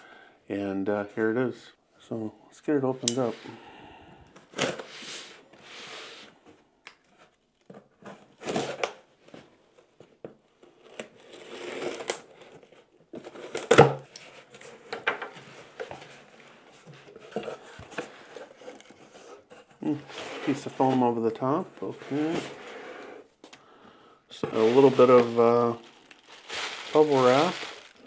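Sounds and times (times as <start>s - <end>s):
tape tearing: 10.8s - 12.5s
cardboard flaps scraping: 21.9s - 23.1s.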